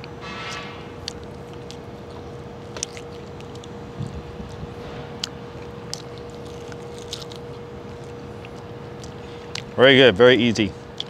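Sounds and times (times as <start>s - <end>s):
faint constant hum: 0.0s - 11.0s.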